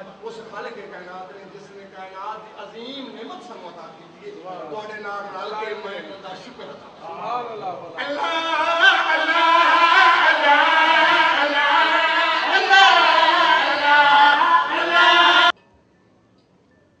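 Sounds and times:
men singing a chant: 8.0s - 15.5s.

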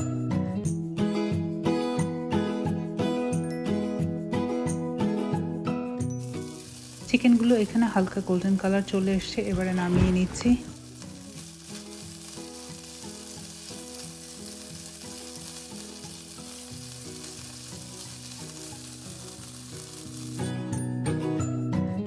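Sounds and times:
soft background music: 0.0s - 22.0s
chicken sizzling in oil: 6.0s - 21.6s.

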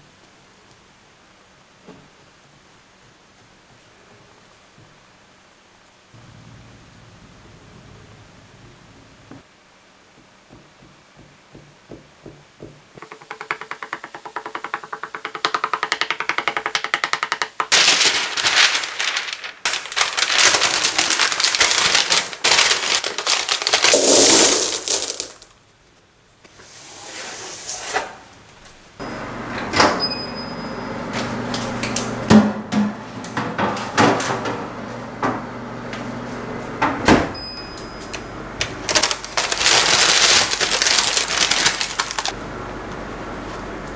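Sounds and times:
parchment paper crinkling: 16.0s - 25.4s, 38.7s - 42.4s.

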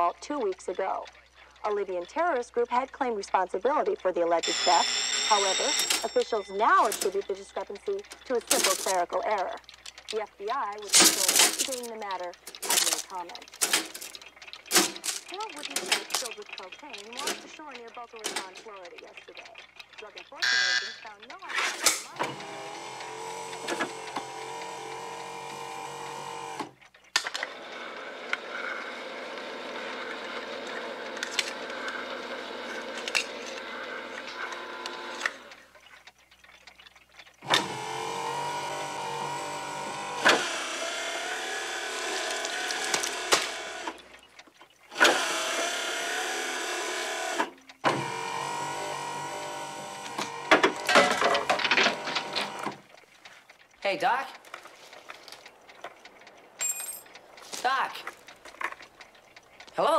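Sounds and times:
can-opening machine whining: 4.4s - 10.2s, 10.8s - 16.4s, 21.6s - 35.6s, 37.4s - 44.2s, 44.9s - 52.9s
metallic clatters: 5.7s - 19.8s, 56.6s - 58.8s.

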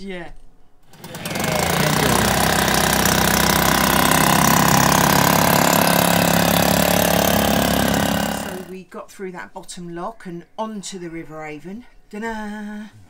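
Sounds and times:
boat engine running: 0.9s - 8.7s.

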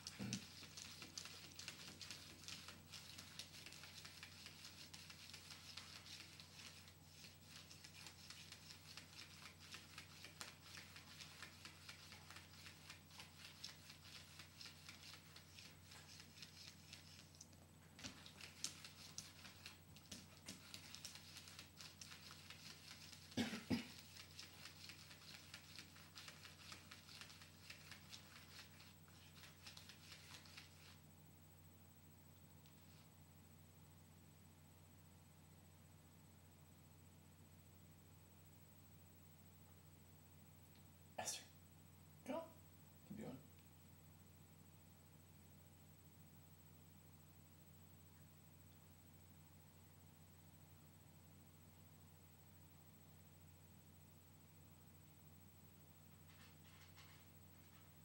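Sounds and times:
cat claws scratching vinyl floor: 0.0s - 31.0s.

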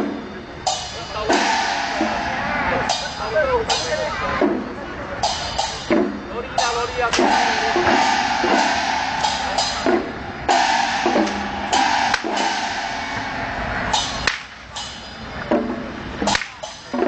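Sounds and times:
drums and cymbals playing: 0.0s - 17.0s
whip cracks: 14.2s - 14.6s.

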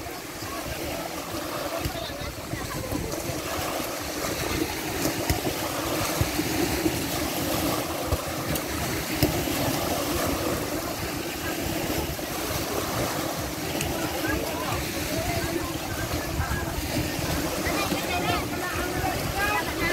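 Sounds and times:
small waves washing over sand: 0.0s - 19.9s.

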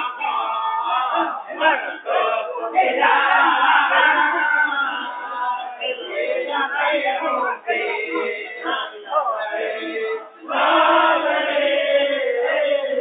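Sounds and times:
men singing in chorus: 0.0s - 13.0s.

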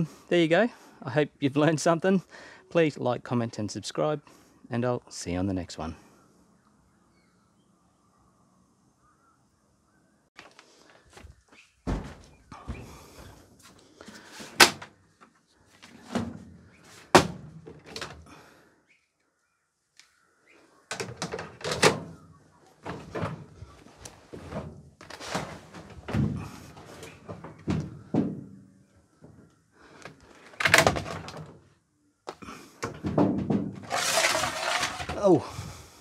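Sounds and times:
sharp thunks and knocks: 11.8s - 13.3s, 32.8s - 33.9s.

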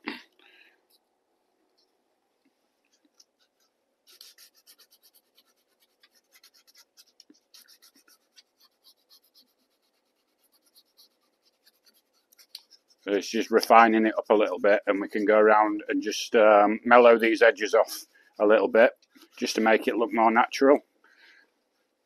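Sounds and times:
sanding wood by hand: 4.1s - 15.6s.

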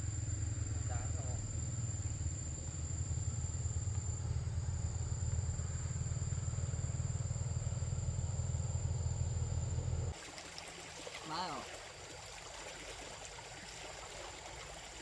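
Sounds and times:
steady low rumble: 0.0s - 10.2s.

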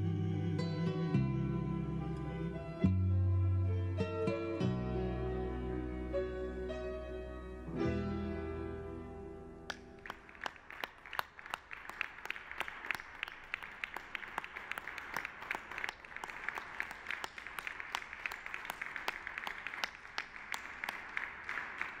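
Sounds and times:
small group applauding: 9.7s - 22.0s.

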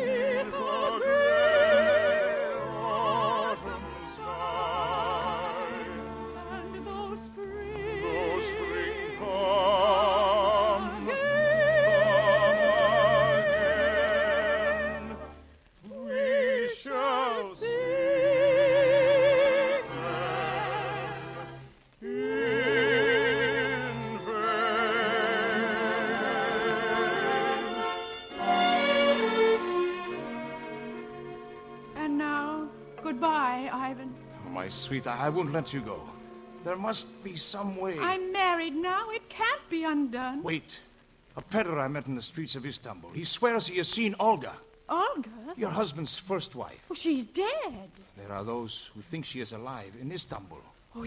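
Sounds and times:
operatic singing with vibrato: 0.0s - 40.8s
orchestral accompaniment: 18.0s - 38.3s.

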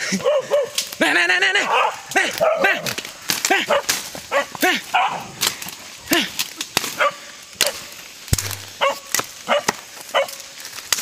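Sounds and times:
dog yelping barks: 0.2s - 0.8s, 1.6s - 2.8s, 3.7s - 5.3s, 8.8s - 10.4s
sharp crack: 2.1s - 4.8s, 5.4s - 10.0s.

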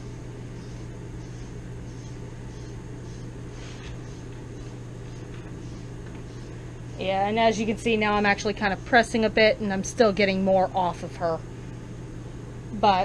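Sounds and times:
steady low hum: 0.0s - 13.0s
comb raking through dog fur: 3.5s - 4.2s.

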